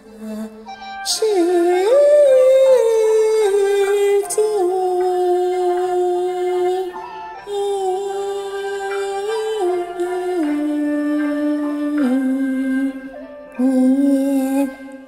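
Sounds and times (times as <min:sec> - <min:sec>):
person singing opera aria: 0:00.0 - 0:15.0.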